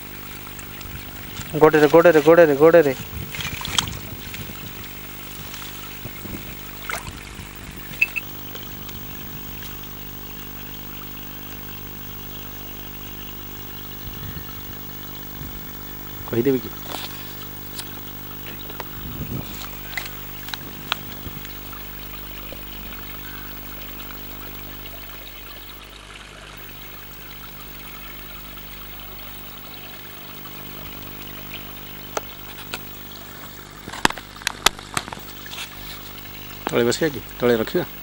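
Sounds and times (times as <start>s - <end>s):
motor running steadily: 0.0s - 38.0s.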